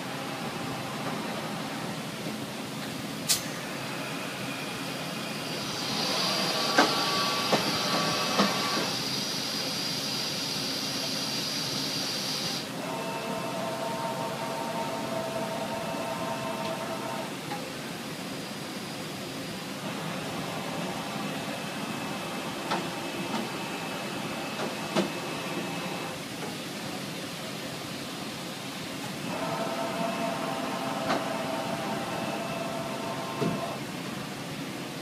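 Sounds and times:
loud air hiss: 3.1 - 12.8
steady motor whine: 3.5 - 9.9, 29.2 - 33.9.

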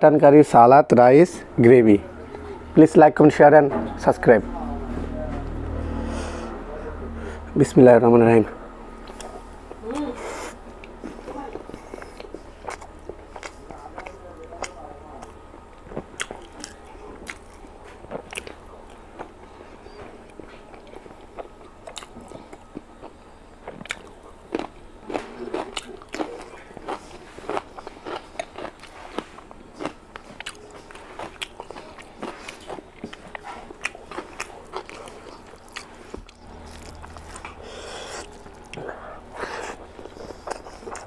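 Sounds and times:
chewing with wet mouth smacks: 9.0 - 10.1, 10.7 - 41.0.

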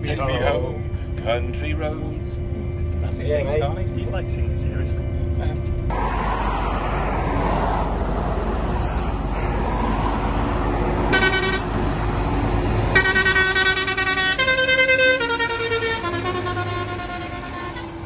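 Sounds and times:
road traffic engine rumble: 0.0 - 18.0
horns honking long notes: 11.0 - 12.0, 12.8 - 18.0
vehicle horn toot: 11.1 - 11.7, 12.9 - 18.0.

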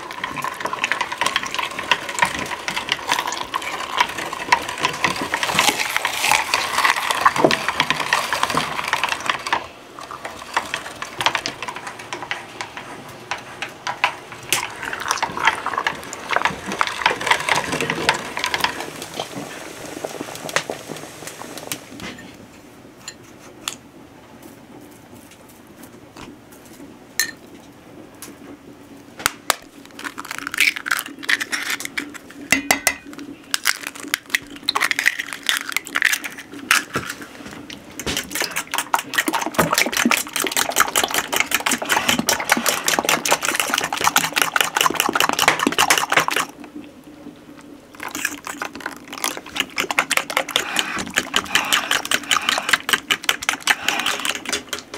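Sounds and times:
kitchen clatter: 30.6 - 37.3
hand-cranked meat grinder grinding: 38.0 - 46.4, 48.0 - 54.9.

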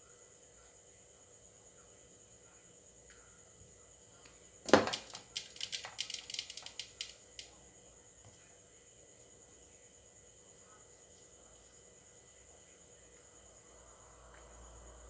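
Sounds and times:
sharp clicks and rattles: 4.7 - 7.5.

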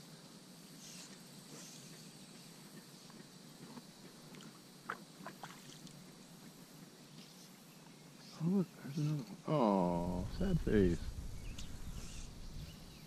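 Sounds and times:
water lapping against float tube: 2.4 - 6.1.

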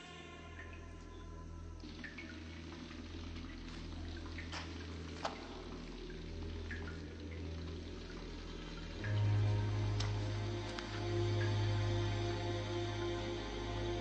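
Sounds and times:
low steady hum: 0.0 - 14.0
water dripping in a cave: 0.0 - 14.0.

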